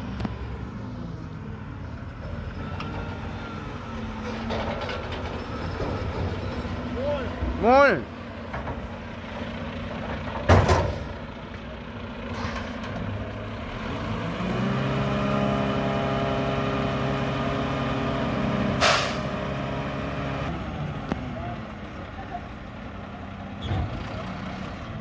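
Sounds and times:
garbage truck diesel engine: 0:00.0 - 0:25.0
sharp air hiss: 0:18.8 - 0:19.2
air brake hiss: 0:18.8 - 0:19.3.

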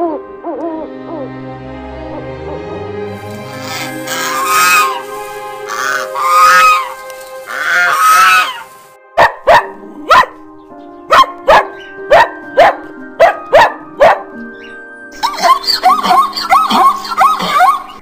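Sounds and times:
background music: 0:00.0 - 0:18.0
goose honking: 0:03.1 - 0:08.9
dog barking: 0:09.2 - 0:10.4, 0:11.1 - 0:14.4.

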